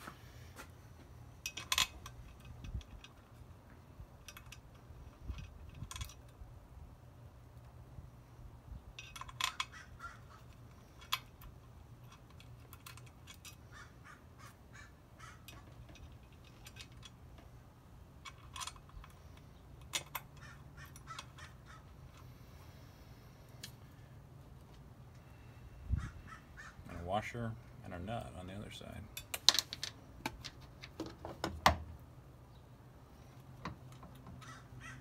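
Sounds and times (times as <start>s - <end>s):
small metal hardware clinking: 1.3s - 3.5s, 4.2s - 6.4s, 8.9s - 13.7s, 15.4s - 17.6s, 18.2s - 22.6s.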